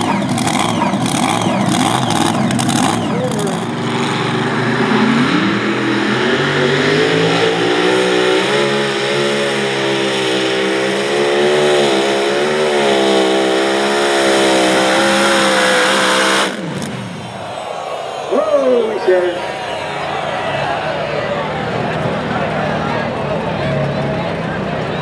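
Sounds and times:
tractor engine at high revs: 0:00.0 - 0:17.7.

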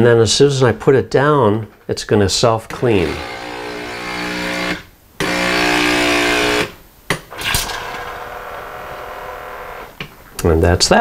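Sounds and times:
pump humming: 0:02.7 - 0:09.9.

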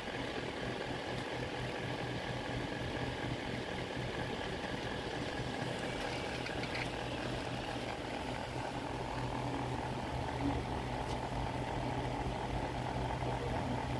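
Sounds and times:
low mechanical hum: 0:00.0 - 0:13.9.

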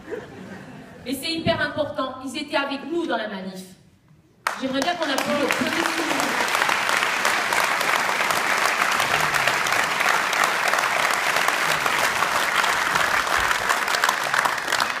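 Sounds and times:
crowd applauding: 0:04.4 - 0:15.0.

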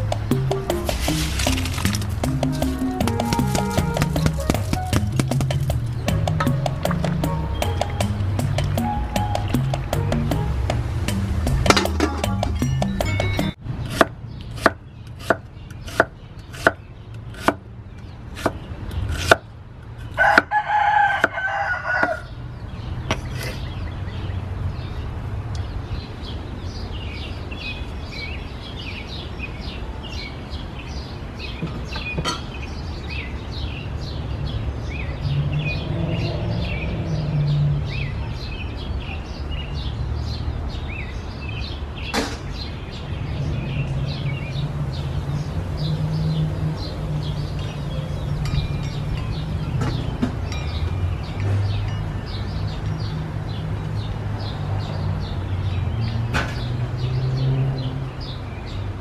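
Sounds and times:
sharp knocks: 0:00.0 - 0:16.8
small birds chirping: 0:00.0 - 0:20.4, 0:22.0 - 0:59.0
outdoor background noise: 0:00.0 - 0:59.0
rooster crowing: 0:20.2 - 0:22.3.

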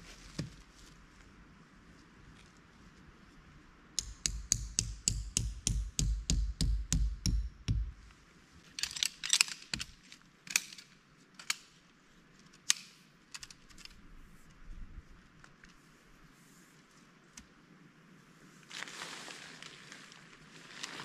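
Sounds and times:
tent stake hammered into ground: 0:04.0 - 0:08.1.

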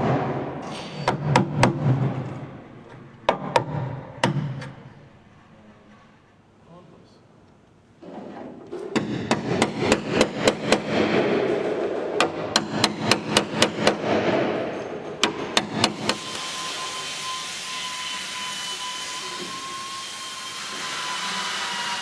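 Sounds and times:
hammer striking steel bar: 0:08.9 - 0:16.4.

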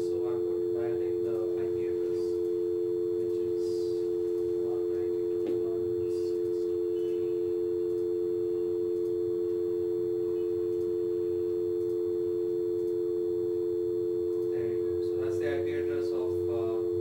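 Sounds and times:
telephone dial tone: 0:00.0 - 0:17.0
faint clicks: 0:04.2 - 0:04.5, 0:07.8 - 0:08.1, 0:08.9 - 0:09.6, 0:10.2 - 0:13.0, 0:14.3 - 0:14.6.

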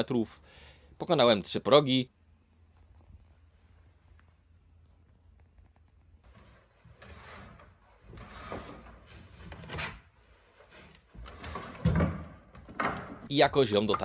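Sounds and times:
wooden pallet scraping on rollers: 0:06.3 - 0:14.0
wooden knocks: 0:11.2 - 0:14.0.

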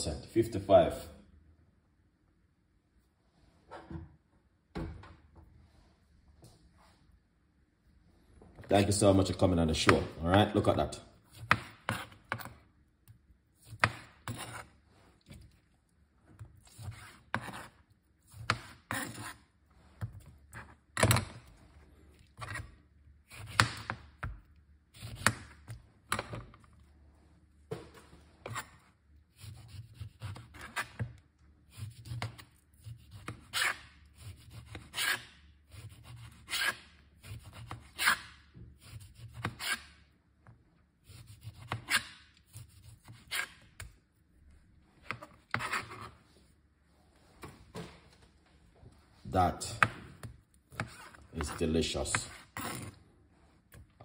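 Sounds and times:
knife cutting on plastic board: 0:11.3 - 0:12.6, 0:13.6 - 0:15.6, 0:16.4 - 0:21.5, 0:22.2 - 0:26.7, 0:27.7 - 0:40.0, 0:41.0 - 0:43.9, 0:45.0 - 0:46.2, 0:49.7 - 0:53.0.

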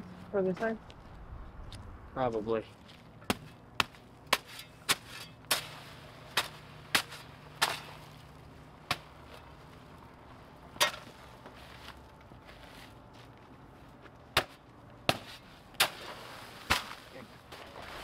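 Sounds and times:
hand tool chopping into concrete: 0:03.3 - 0:08.0.

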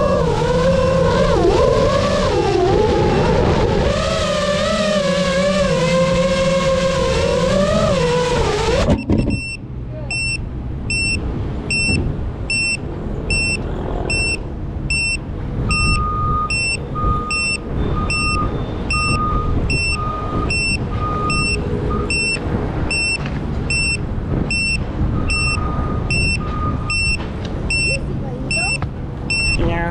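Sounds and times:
high beeps: 0:08.9 - 0:29.8
slower lower beep: 0:09.0 - 0:29.7.

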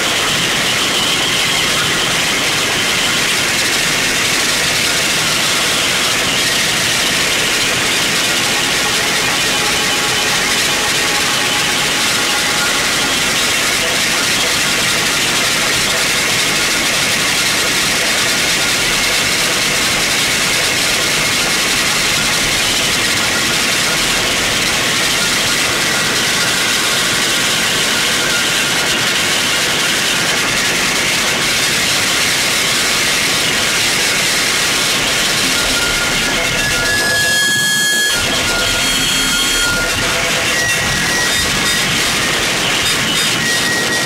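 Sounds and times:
distorted noise wall: 0:00.0 - 0:44.0
faint steady tones: 0:02.8 - 0:16.6, 0:33.2 - 0:43.9.

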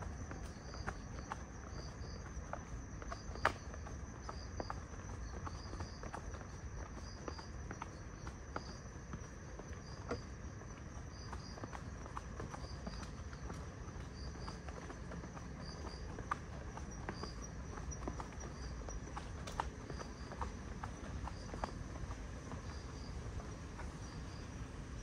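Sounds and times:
crickets chirping: 0:00.0 - 0:25.0
footsteps on pavement: 0:00.0 - 0:25.0.

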